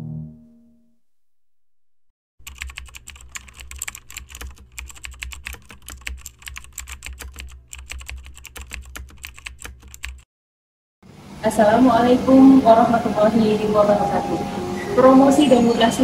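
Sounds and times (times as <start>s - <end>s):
keyboard key clicks: 2.5s - 10.2s.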